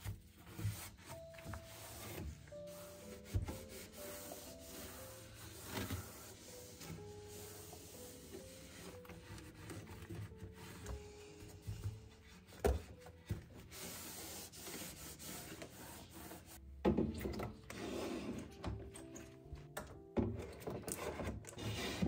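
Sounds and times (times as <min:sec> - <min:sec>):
cloth rubbing a shelf: 0:00.0 - 0:16.6.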